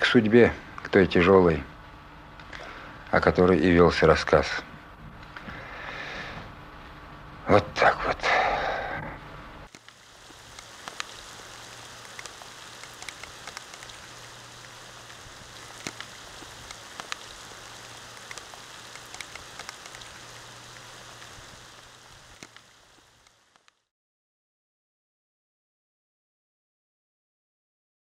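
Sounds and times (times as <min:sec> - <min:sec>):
rain on a slate roof: 0:09.6 - 0:23.9.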